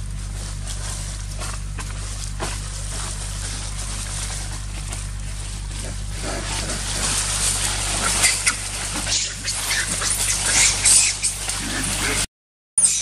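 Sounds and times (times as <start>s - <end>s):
dry leaves rustling and crackling: 0.0s - 12.2s.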